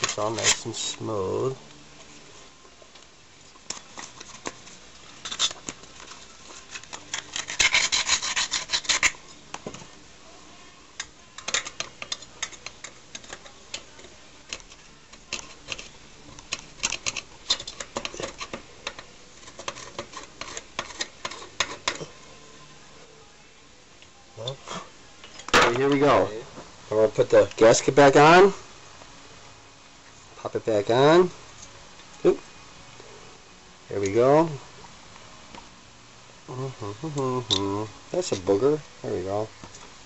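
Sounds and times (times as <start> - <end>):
sandpaper scraping metal: 3.8 - 9.2, 19.3 - 22.0.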